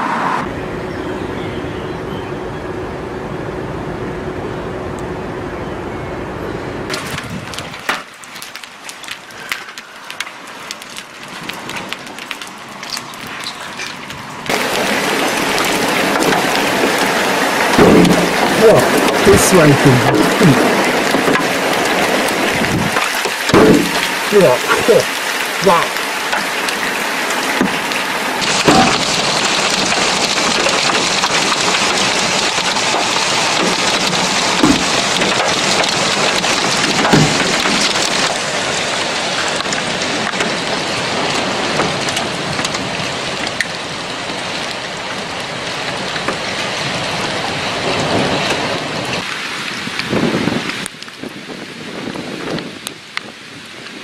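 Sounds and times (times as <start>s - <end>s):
hail and heavy rain pelting: 6.9s - 54.0s
hailstones knocking: 6.9s - 54.0s.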